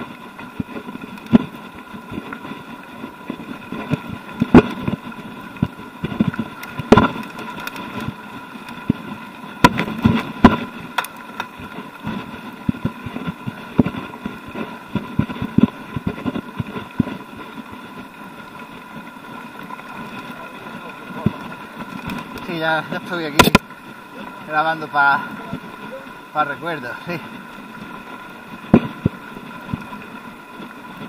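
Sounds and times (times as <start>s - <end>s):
bike knocking and rattling: 0.0s - 24.6s
bike rolling over gravel: 0.0s - 31.0s
thin steady whine: 0.0s - 31.0s.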